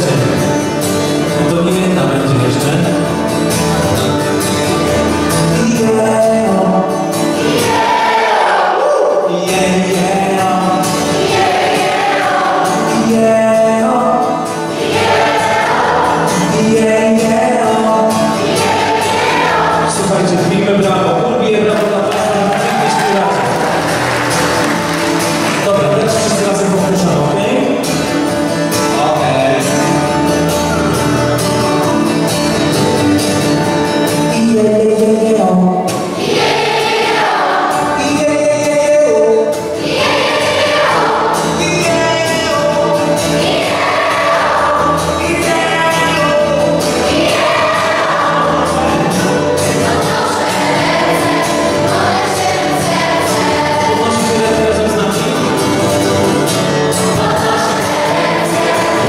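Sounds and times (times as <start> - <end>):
acoustic guitar: 0.0 - 59.0
keyboard: 0.0 - 59.0
choir singing a gospel song: 7.3 - 25.7, 35.8 - 59.0.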